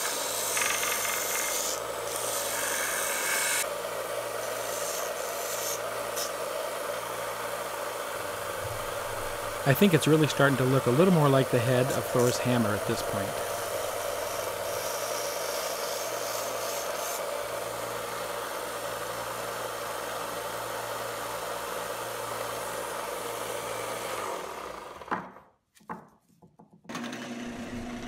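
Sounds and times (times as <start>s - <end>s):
belt sander sanding wood: 0.0s - 25.0s
motor low hum: 6.9s - 14.8s.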